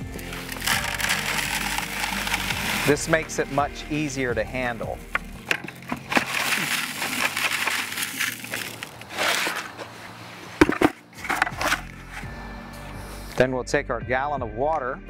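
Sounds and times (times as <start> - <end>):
powder pouring into bucket: 0.0 - 9.7.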